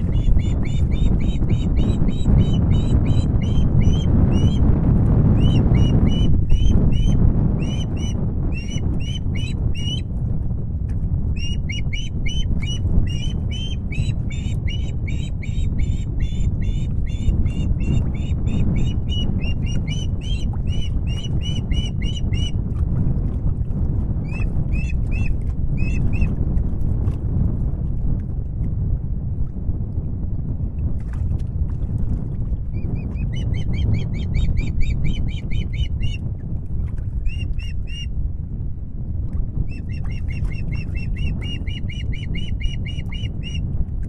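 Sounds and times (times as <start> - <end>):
osprey calling: 0.0 - 4.6, 5.4 - 10.1, 11.4 - 22.6, 24.3 - 26.3, 33.2 - 36.2, 37.2 - 38.1, 39.7 - 43.6
wind on microphone: 0.0 - 44.0.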